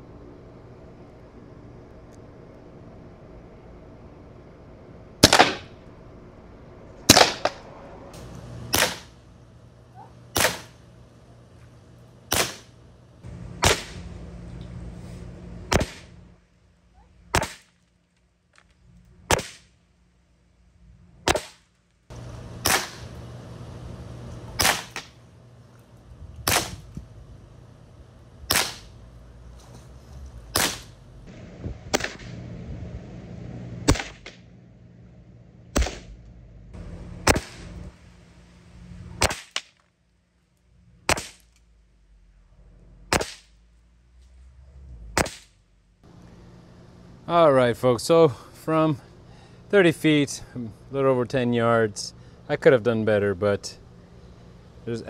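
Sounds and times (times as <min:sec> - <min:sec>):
air pistol shots: 0:05.2 - 0:05.8, 0:07.1 - 0:07.6, 0:08.7 - 0:09.2, 0:10.3 - 0:10.8, 0:12.3 - 0:12.7, 0:13.6 - 0:14.1, 0:15.7 - 0:16.1, 0:17.3 - 0:17.8, 0:19.3 - 0:19.7, 0:21.2 - 0:21.7, 0:22.6 - 0:23.1, 0:24.6 - 0:25.2, 0:26.4 - 0:26.9, 0:28.5 - 0:29.0, 0:30.5 - 0:31.0, 0:31.9 - 0:32.4, 0:33.8 - 0:34.4, 0:35.7 - 0:36.2, 0:37.2 - 0:37.8, 0:39.2 - 0:39.8, 0:41.1 - 0:41.5, 0:43.1 - 0:43.6, 0:45.2 - 0:45.6.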